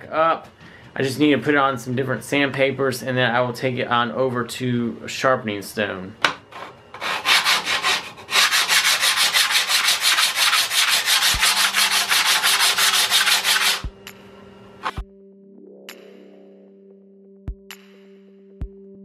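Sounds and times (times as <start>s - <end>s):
plane iron rasping on sandpaper: 6.6s - 13.9s.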